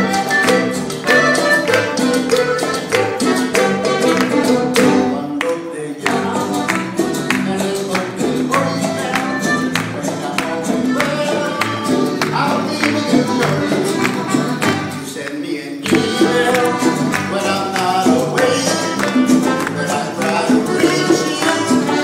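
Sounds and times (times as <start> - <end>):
hand drums: 0.0 - 5.1
person singing: 0.0 - 22.0
strummed acoustic guitars: 0.0 - 22.0.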